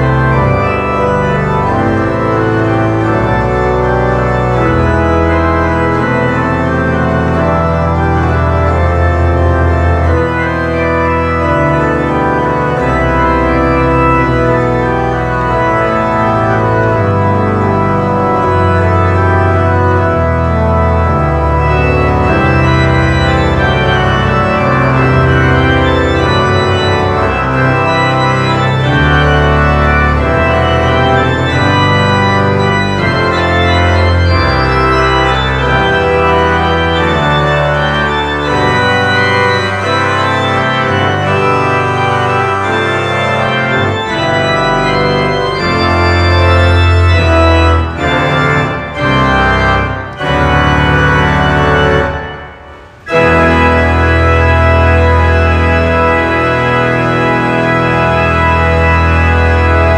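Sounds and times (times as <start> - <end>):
organ playing sustained chords: 0.0 - 59.9.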